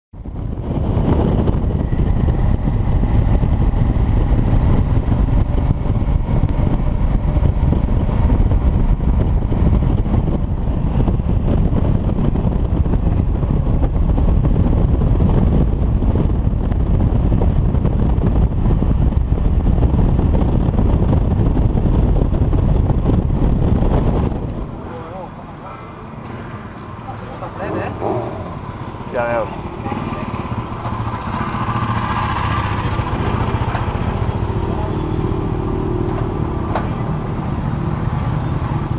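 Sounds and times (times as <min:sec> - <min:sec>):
wind and road noise: 0:00.1 - 0:38.9
motorcycle engine: 0:21.6 - 0:38.9.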